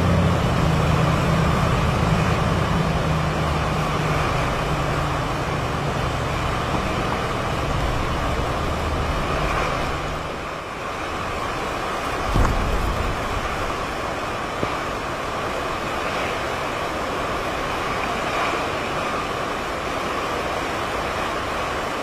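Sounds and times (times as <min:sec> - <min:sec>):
wind gust buffeting microphone: 0:00.0 - 0:17.0
surf breaking: 0:00.0 - 0:21.9
loud rushing wind: 0:00.0 - 0:22.0.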